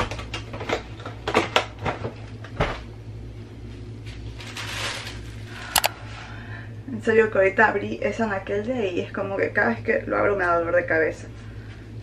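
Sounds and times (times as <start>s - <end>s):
plastic bag rustling: 4.2s - 5.7s.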